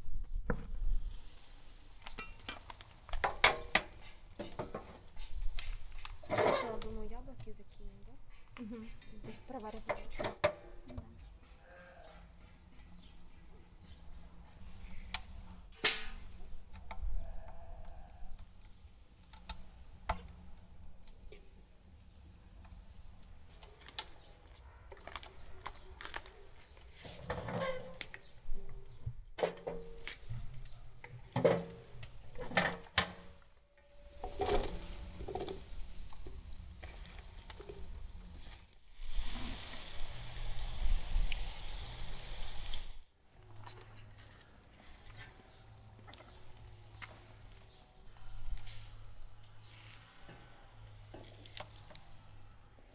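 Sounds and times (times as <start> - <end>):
steady hiss: 35.7 - 43.1.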